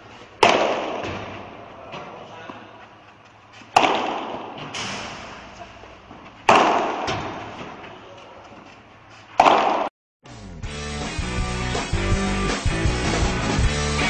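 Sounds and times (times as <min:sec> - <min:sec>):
paddle striking ball pop: 0:03.8 - 0:04.4, 0:09.4 - 0:09.9.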